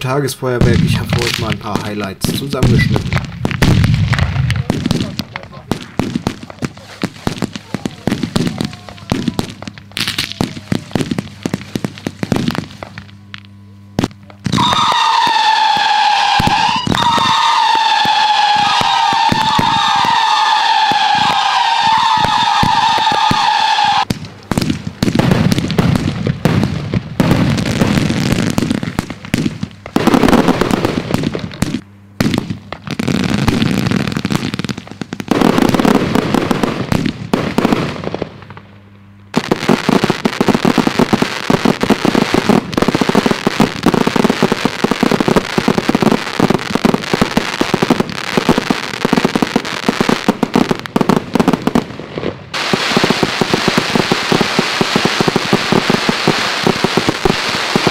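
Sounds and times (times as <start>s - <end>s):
fireworks crackling: 0.0s - 57.9s.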